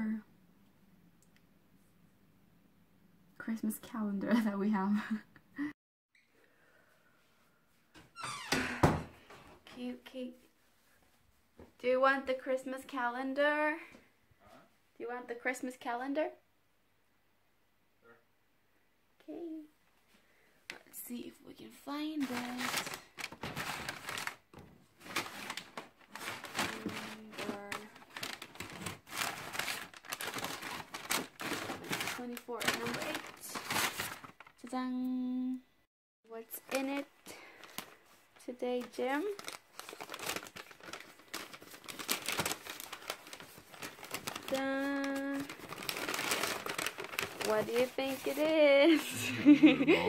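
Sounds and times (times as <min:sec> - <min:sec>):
paper wrappers rustling: 0:22.0 - 0:34.7, 0:36.4 - 0:49.0.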